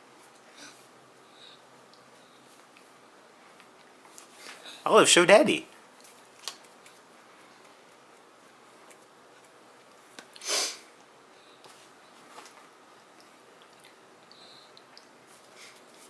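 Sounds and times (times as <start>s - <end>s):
short breathy hiss: 10.4s - 10.9s.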